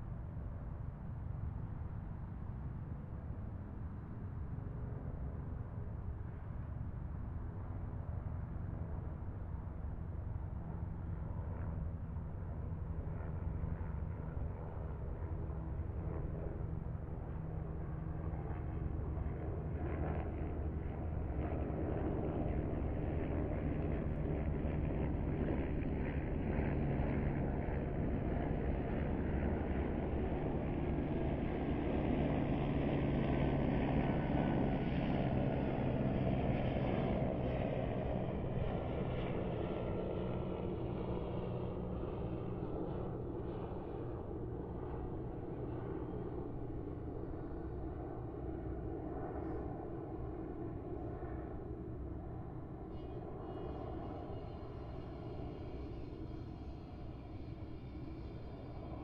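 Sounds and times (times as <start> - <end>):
distant highway traffic rumble: 40.4 - 59.0.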